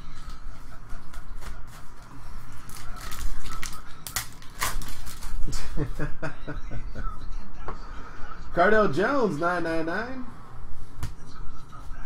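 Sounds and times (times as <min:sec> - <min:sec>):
foil wrapper crinkling and tearing: 0:02.5 - 0:05.6.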